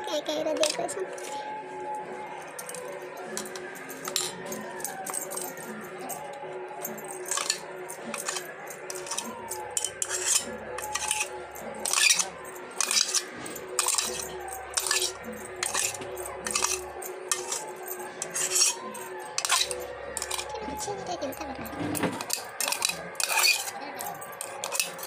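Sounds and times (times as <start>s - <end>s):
metal spoon scraping steel jar: 3.5s - 4.4s, 7.2s - 20.5s, 21.6s - 23.8s, 24.4s - 25.0s.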